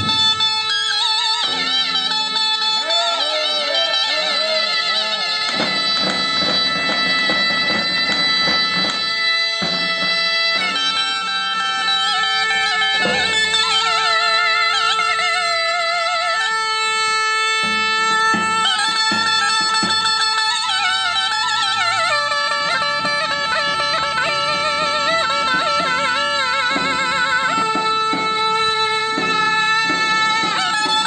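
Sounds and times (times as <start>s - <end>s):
held drone note: 0.0s - 20.0s
shawm playing folk melody: 0.0s - 31.0s.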